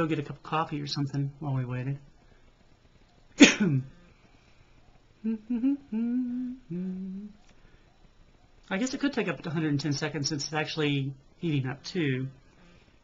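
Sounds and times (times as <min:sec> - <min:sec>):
man humming: 0:05.2 - 0:07.5.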